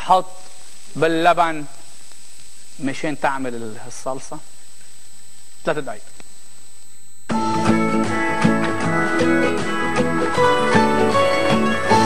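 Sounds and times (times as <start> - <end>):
plucked guitar over a beat: 7.3 - 12.0.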